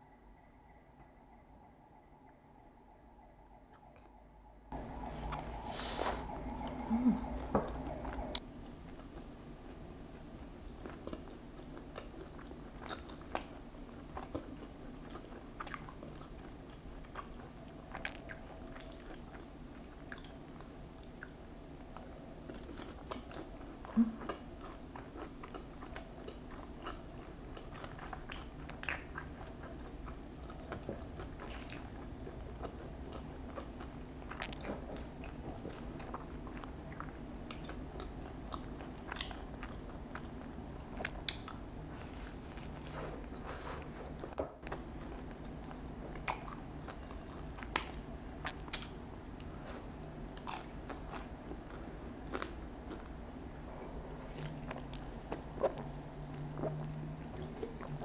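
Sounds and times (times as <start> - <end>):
chewing and biting fried chicken: 22.0 - 53.2.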